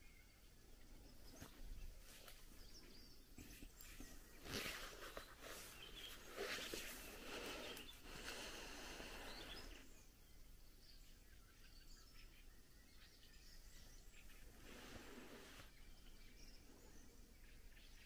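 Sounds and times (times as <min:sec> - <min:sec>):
distant bird chirps: 0:00.0 - 0:18.0
soft rustling: 0:01.2 - 0:09.8, 0:14.3 - 0:15.7.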